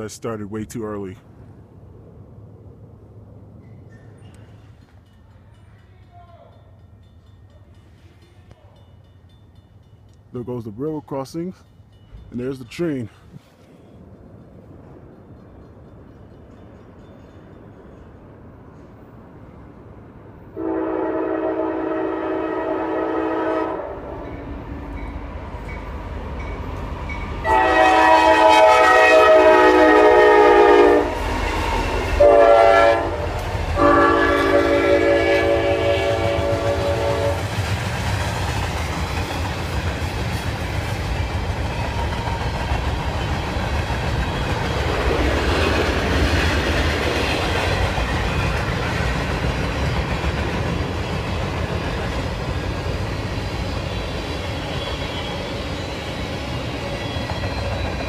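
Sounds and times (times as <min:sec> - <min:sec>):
train wheels on rail: 0:03.2 - 0:58.0
locomotive horn blasts: 0:20.6 - 0:24.4, 0:27.4 - 0:31.2, 0:32.2 - 0:37.4.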